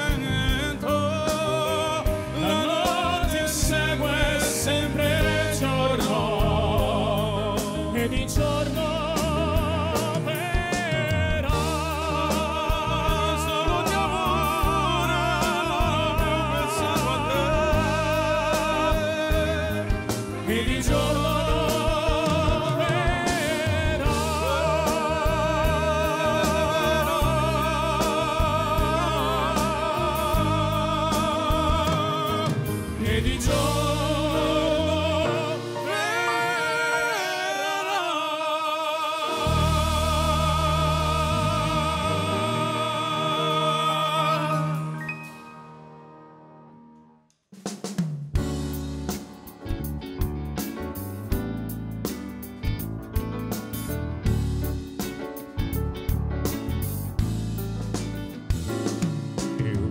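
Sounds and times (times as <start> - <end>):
drums: 0.0 - 38.1, 39.2 - 46.0, 47.4 - 59.9
person singing: 0.0 - 45.9, 59.4 - 59.9
live band music: 0.0 - 59.9.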